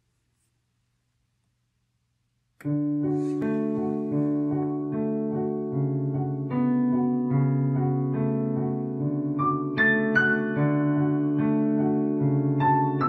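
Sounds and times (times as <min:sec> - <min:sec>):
piano chords: 0:02.6 - 0:13.0
piano melody high notes: 0:02.6 - 0:13.0.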